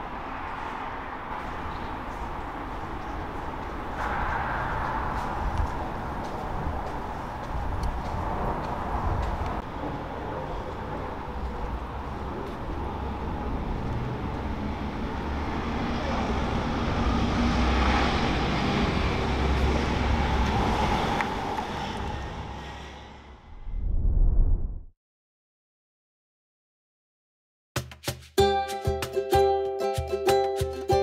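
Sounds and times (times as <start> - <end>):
traffic noise: 0.0 - 23.7
low rumble: 3.8 - 9.6, 19.7 - 24.9.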